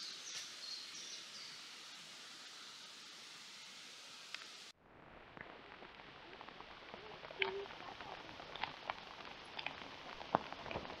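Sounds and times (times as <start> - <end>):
faint hiss of rain: 0.0 - 11.0
raindrops tapping on a tarp: 5.3 - 11.0.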